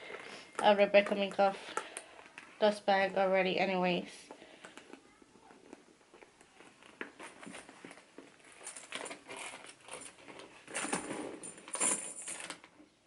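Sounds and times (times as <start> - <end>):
leather bag rustling: 5.5 - 12.6
metal chain strap clinking: 8.4 - 12.7.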